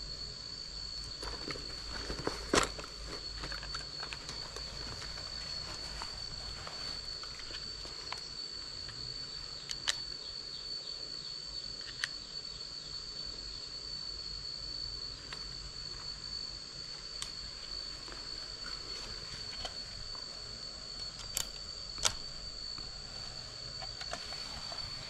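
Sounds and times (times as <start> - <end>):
high-pitched insect trill: 0.0 - 25.0
sharp clicks of handling cable: 1.1 - 5.8, 21.0 - 22.9.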